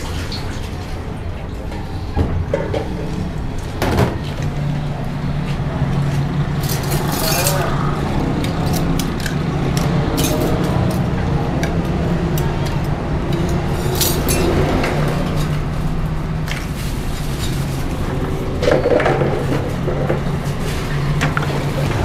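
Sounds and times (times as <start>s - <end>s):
road traffic hum: 0.0s - 22.0s
glasses and utensils clinking: 6.6s - 7.8s, 10.1s - 11.1s, 13.4s - 15.6s.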